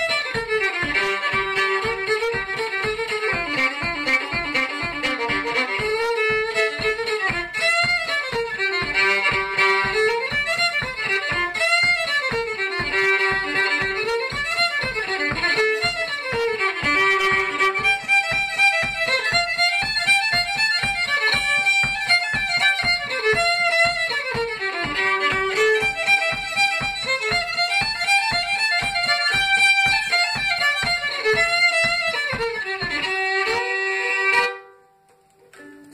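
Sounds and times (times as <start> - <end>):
solo fiddle playing lively tune: 0.0 - 35.9.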